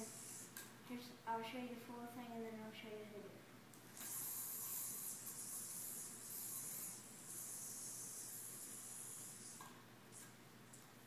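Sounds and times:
yo-yo spinning hiss: 0:00.0 - 0:00.7, 0:03.9 - 0:10.8.

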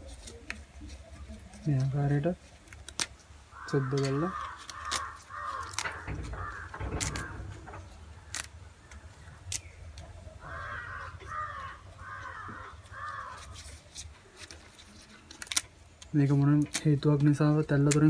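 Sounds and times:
leaves and stalks snapping: 0:02.6 - 0:10.1, 0:12.3 - 0:18.0
crow cawing: 0:03.5 - 0:08.4, 0:10.4 - 0:13.6.

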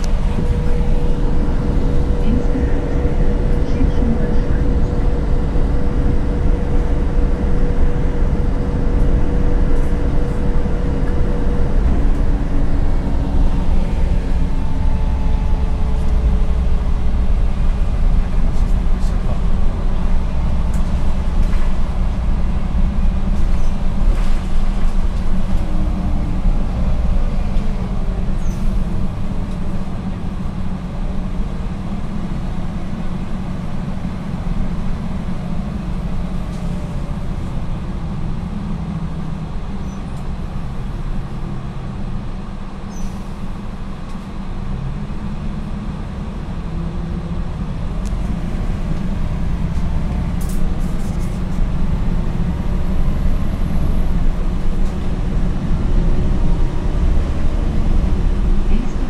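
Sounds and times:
faint whine sliding in pitch: 0:00.0 - 0:18.2
bus engine drone: 0:00.0 - 0:59.0.

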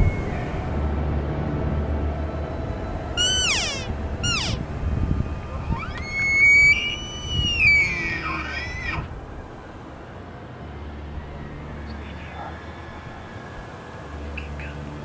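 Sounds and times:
elk calling: 0:03.1 - 0:09.6.

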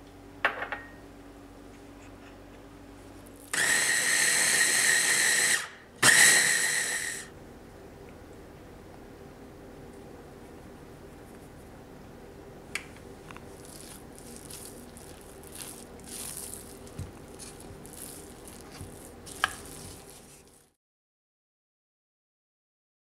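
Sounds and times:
steady low hum: 0:00.0 - 0:03.6, 0:07.3 - 0:20.8
spatula stirring sticky mixture: 0:13.2 - 0:20.8.

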